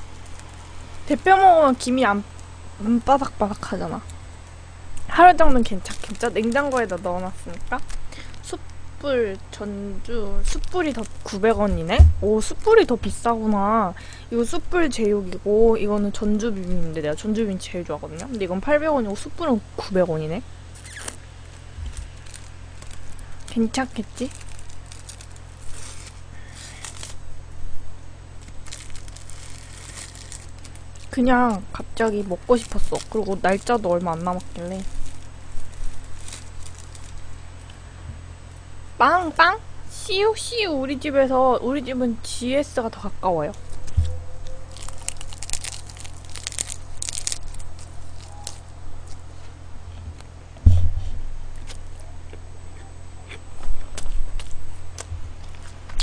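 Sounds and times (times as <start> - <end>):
plastic wrapper crinkling: 0.0 - 1.9, 5.0 - 8.8, 10.1 - 13.4, 20.7 - 27.3, 28.3 - 37.8, 43.4 - 49.3
dry seaweed crackling: 0.0 - 19.7, 20.7 - 27.6, 28.2 - 37.8, 42.2 - 49.4
low hum: 0.0 - 56.0
loud low thump: 11.9 - 12.3, 50.6 - 51.2.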